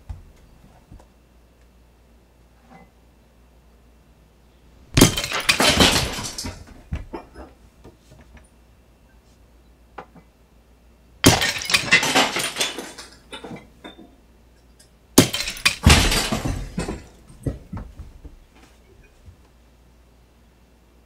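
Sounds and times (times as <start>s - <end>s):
glass breaking: 4.9s - 7.4s, 11.2s - 14.0s, 15.2s - 17.7s
glass pieces clinking: 5.0s - 7.5s, 11.2s - 14.1s, 15.2s - 17.6s.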